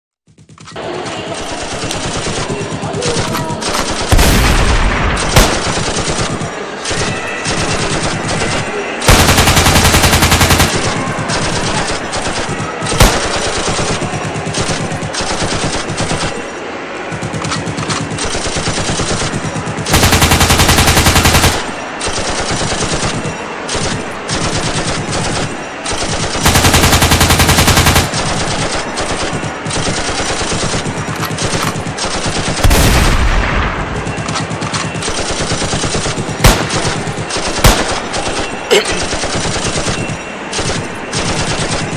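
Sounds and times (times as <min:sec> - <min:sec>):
automatic gunfire: 0:01.0 - 0:16.5, 0:17.1 - 0:41.9
machine-gun bursts: 0:01.0 - 0:16.5, 0:17.1 - 0:33.3, 0:34.0 - 0:41.9
single sharp gunshots: 0:32.0 - 0:34.1.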